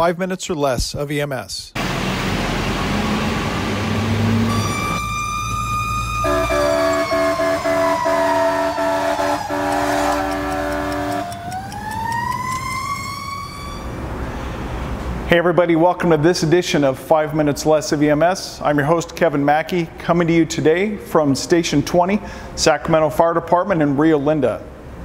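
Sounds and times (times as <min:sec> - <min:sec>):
truck engine running: 0:01.8 - 0:13.7
fire engine siren winding: 0:04.2 - 0:14.3
air horn blasts: 0:04.4 - 0:11.7.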